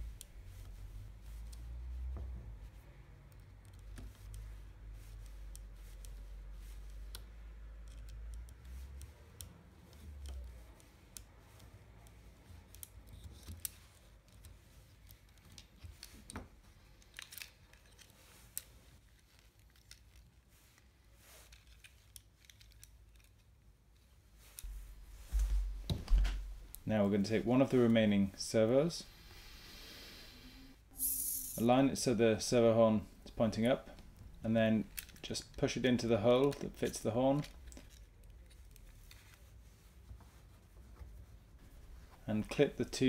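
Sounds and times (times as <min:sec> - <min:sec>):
plastic parts clicking and scraping: 0:03.4 - 0:24.7, 0:34.8 - 0:35.8, 0:36.4 - 0:39.4.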